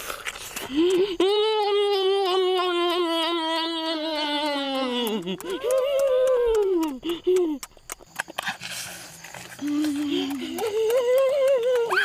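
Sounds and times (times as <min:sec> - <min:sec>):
boy moaning: 0:00.7 - 0:07.6.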